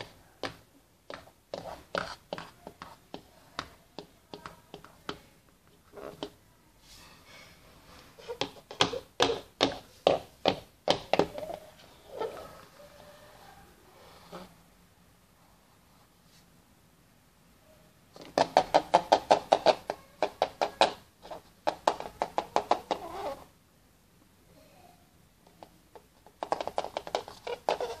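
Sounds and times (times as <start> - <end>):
plastic figurines tapping on wooden floor: 8.4 - 11.6, 18.2 - 23.1, 25.6 - 28.0.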